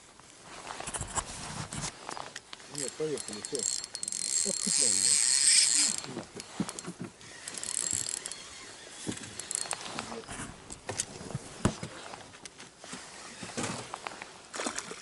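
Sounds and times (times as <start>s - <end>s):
mechanical clicking and creaking: 2.7s - 10.0s.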